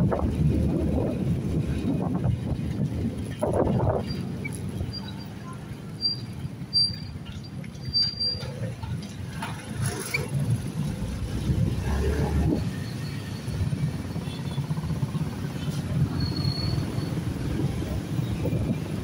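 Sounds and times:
wind buffeting microphone: 0.0 - 5.0, 14.8 - 19.0
small vehicle engine rumble: 0.0 - 19.0.

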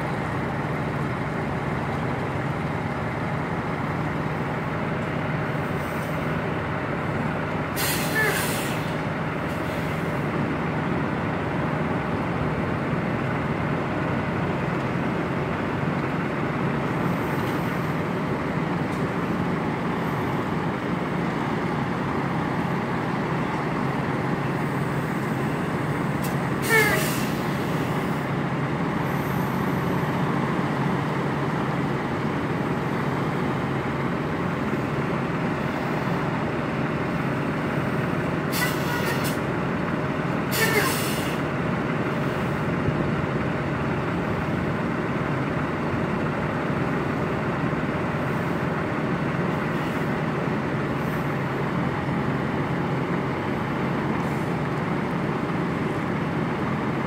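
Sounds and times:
diesel truck engine idling: 0.0 - 57.0
air brake hiss and squeal: 7.8 - 9.0, 26.2 - 28.0, 38.5 - 39.4, 40.5 - 41.5.

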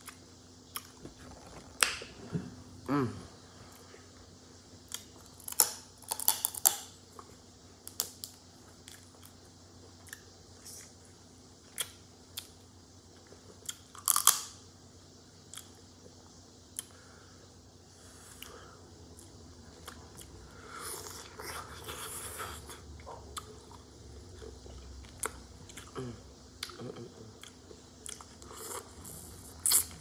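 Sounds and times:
shellfish shells cracking: 5.4 - 6.9.

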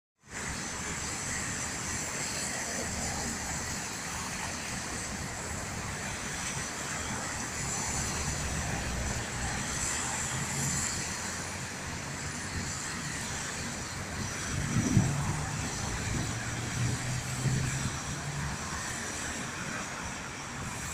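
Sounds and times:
cars passing: 0.4 - 20.9.

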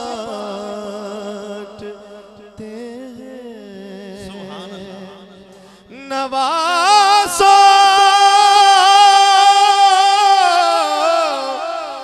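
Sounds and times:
man singing unaccompanied: 0.0 - 12.0.

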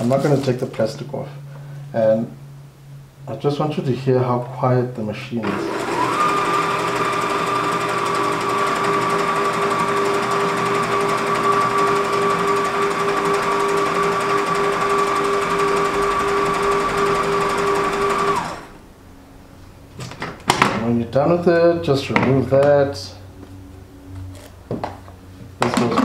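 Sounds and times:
kitchen machine motor whining: 5.4 - 18.9.

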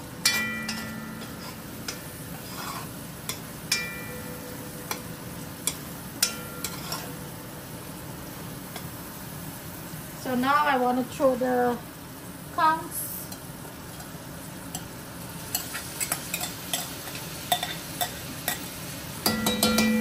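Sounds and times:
food sizzling in oil: 0.0 - 20.0
metal spoon knocking on pot: 0.2 - 1.3, 19.2 - 20.0.

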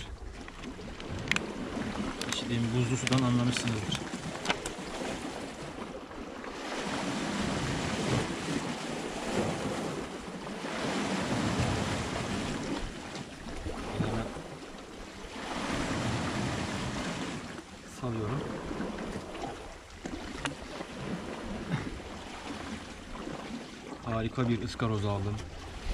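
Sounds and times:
sea waves washing against rocks: 0.0 - 25.9
wind on microphone: 6.7 - 14.5, 25.3 - 25.9.

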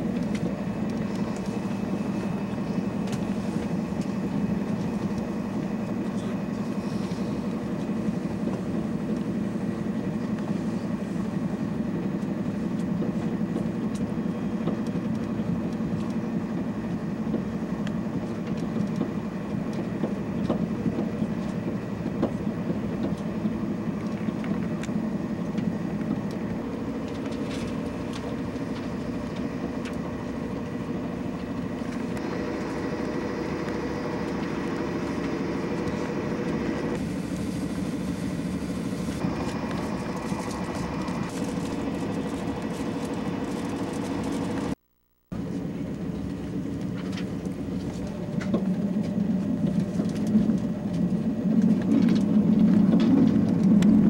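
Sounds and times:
train running rumble from inside: 0.0 - 44.8, 45.4 - 54.0
faint hum: 23.4 - 54.0.

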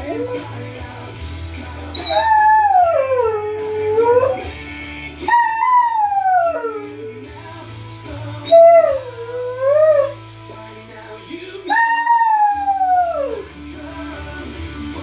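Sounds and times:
dog howling: 0.0 - 0.6, 2.0 - 4.5, 5.2 - 7.2, 8.4 - 10.2, 11.7 - 13.4
recorded music: 0.0 - 15.0.

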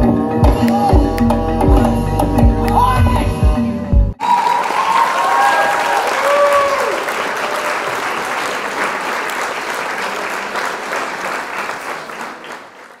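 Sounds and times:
crowd applause: 4.2 - 13.0.

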